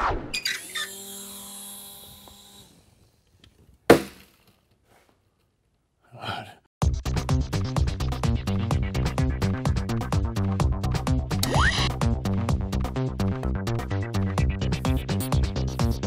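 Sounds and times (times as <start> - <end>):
sharp knock: 3.9 - 4.3
upbeat electronic music: 6.8 - 16.0.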